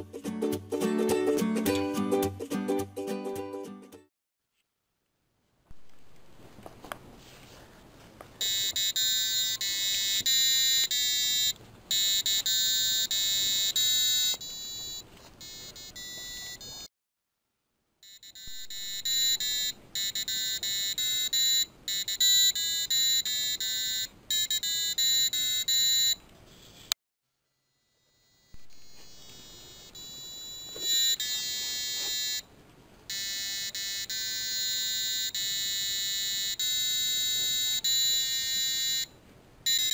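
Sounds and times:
piezo buzzer beeping a tune: 8.4s - 16.9s, 18.0s - 26.9s, 28.1s - 32.4s, 33.1s - 39.9s.

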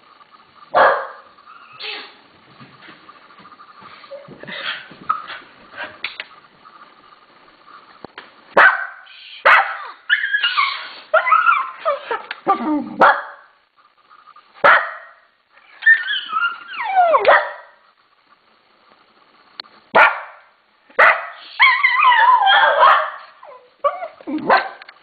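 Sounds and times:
dog barking: 0.8s - 1.3s, 8.6s - 10.0s, 13.0s - 13.5s, 14.6s - 15.2s, 17.1s - 17.8s, 20.0s - 21.4s, 22.4s - 23.3s, 23.9s - 24.8s
dog whining yelps: 9.4s - 12.2s, 15.7s - 17.6s, 21.0s - 24.6s.

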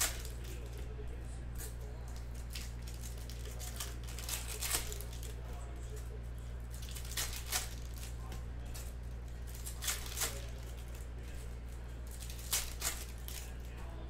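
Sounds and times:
foil wrappers crinkling and tearing: 0.0s - 0.9s, 1.6s - 13.8s
steady low hum: 0.0s - 14.0s
cards handled: 1.6s - 6.0s, 6.7s - 13.8s.

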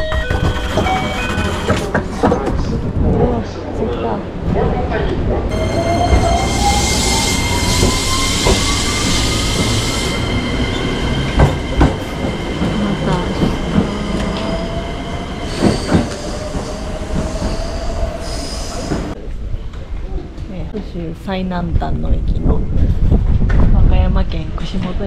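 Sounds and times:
electric train whine: 5.5s - 19.2s.

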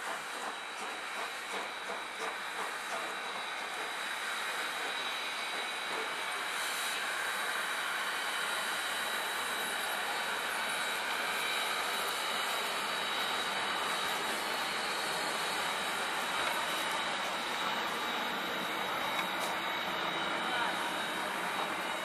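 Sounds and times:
steam locomotive hiss: 0.0s - 22.0s.

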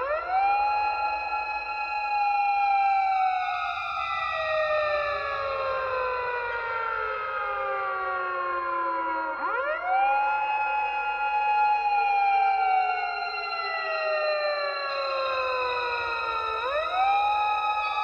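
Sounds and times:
siren wailing: 0.0s - 18.0s.

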